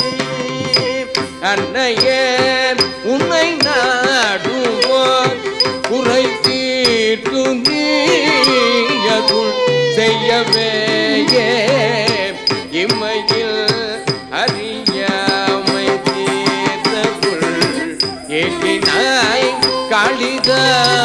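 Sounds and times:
mridangam drum strokes: 0.0s - 21.0s
small cymbal taps: 4.8s - 9.4s.

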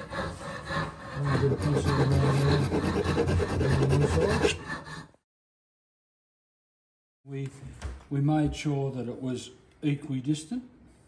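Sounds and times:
file scraping wood: 0.0s - 5.0s.

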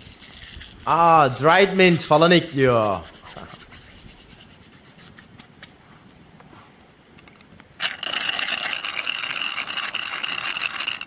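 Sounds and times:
hand-cranked spice grinder whirring: 7.8s - 11.0s.

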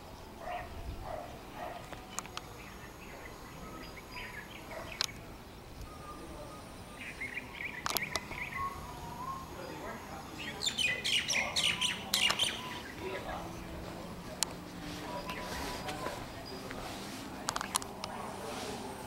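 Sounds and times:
birds chirping: 0.0s - 19.0s
sharp clicks: 1.8s - 2.7s, 4.1s - 5.9s, 7.6s - 8.6s, 12.1s - 12.8s, 17.4s - 18.2s.

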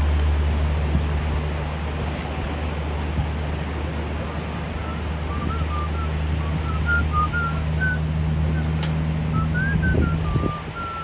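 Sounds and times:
distant propeller plane drone: 0.0s - 11.0s
surf: 0.0s - 11.0s
person whistling: 4.8s - 8.0s, 9.4s - 11.0s.

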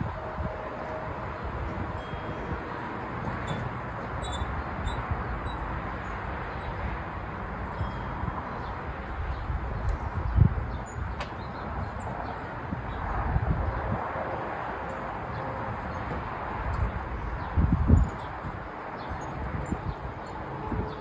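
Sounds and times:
wind rumbling on microphone: 0.0s - 21.0s.

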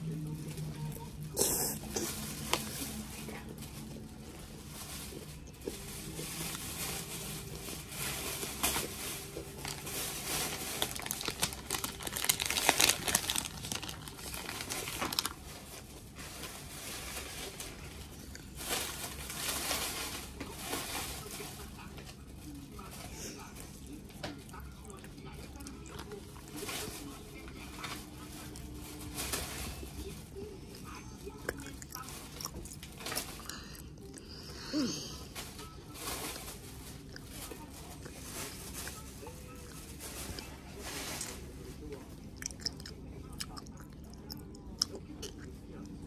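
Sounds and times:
plastic wrapper crinkling: 0.5s - 22.2s, 25.6s - 34.2s, 35.3s - 41.8s.

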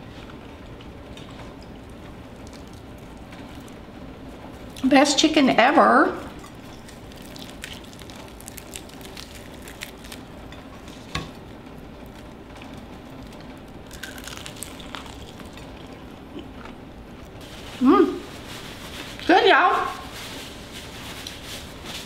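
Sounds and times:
fried chicken crust crackling: 1.4s - 4.9s, 6.3s - 19.3s.

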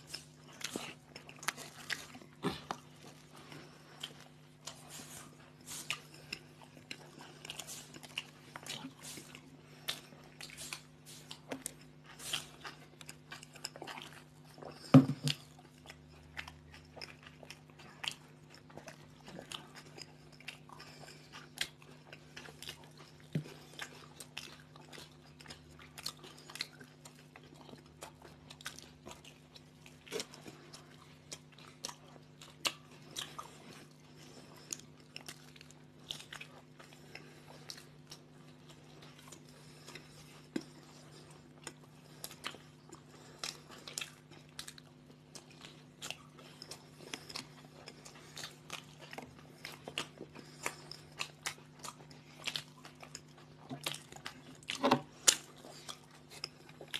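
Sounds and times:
faint steady hum: 0.0s - 56.9s
people crunching toasted sandwiches: 0.0s - 56.9s.

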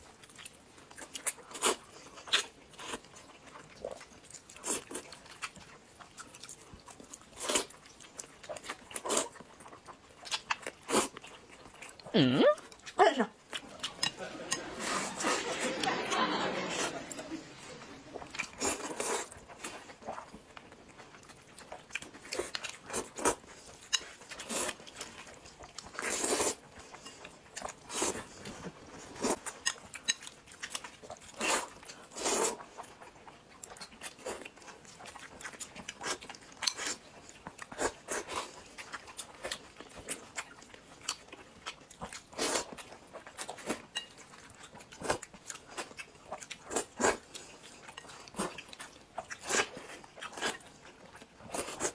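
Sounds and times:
chewing: 0.0s - 51.9s
wet noodle slurping: 13.5s - 20.3s, 25.7s - 27.0s, 30.7s - 32.7s.

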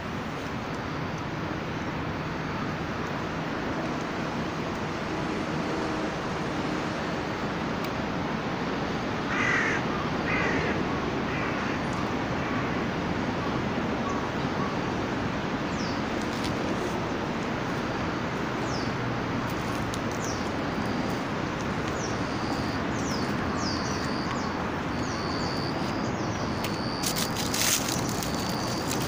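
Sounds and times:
steady background hiss: 0.0s - 29.0s
birds chirping: 15.7s - 29.0s
cluster of clicks: 26.6s - 29.0s.

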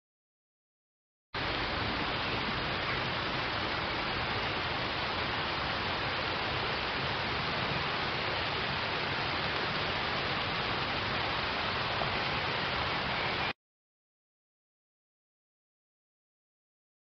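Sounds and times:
rain falling on pond: 1.4s - 13.5s.

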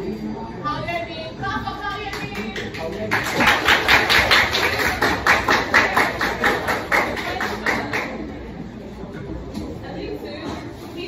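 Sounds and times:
people clapping in unison: 1.9s - 8.3s.

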